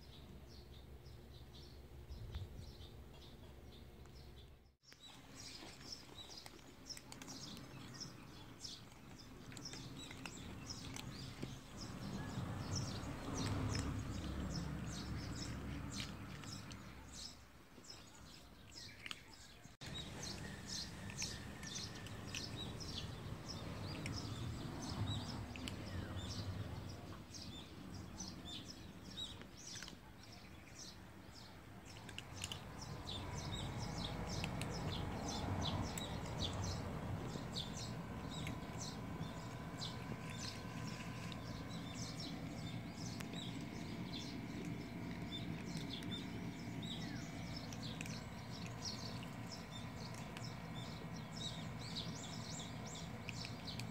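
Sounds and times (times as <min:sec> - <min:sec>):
small birds chirping: 0:00.0 - 0:53.9
low rumbling noise: 0:32.2 - 0:53.9.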